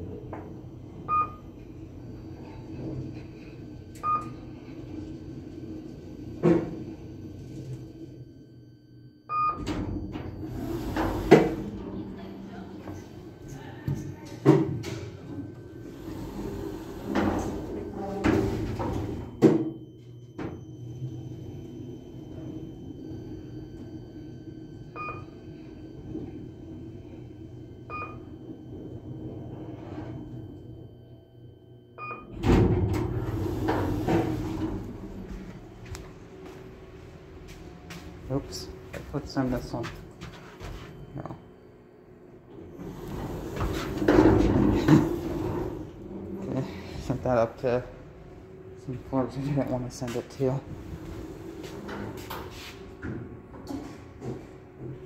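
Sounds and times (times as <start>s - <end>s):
elevator hum: 0.0s - 55.0s
elevator doors shutting knock: 12.9s - 30.8s, 32.0s - 36.8s.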